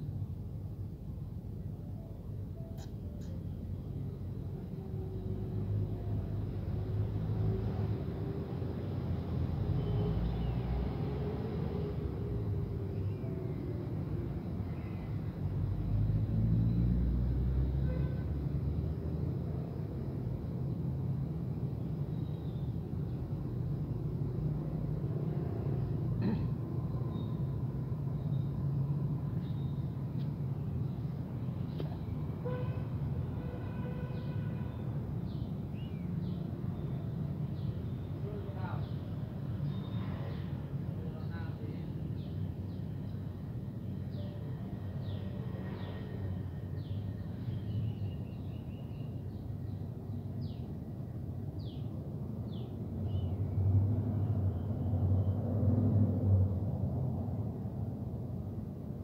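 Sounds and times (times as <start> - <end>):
low outdoor rumble: 0.0 - 10.5.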